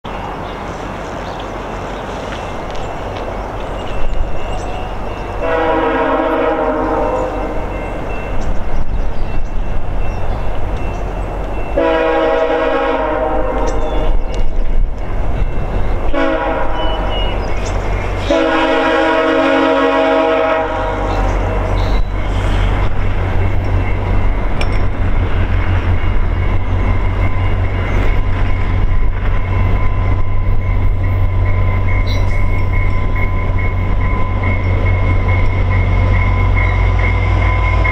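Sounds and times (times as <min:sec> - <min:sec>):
train on rails: 0:00.0 - 0:37.9
locomotive horn blasts: 0:05.4 - 0:07.8, 0:11.7 - 0:14.2, 0:16.1 - 0:17.4, 0:18.2 - 0:22.0.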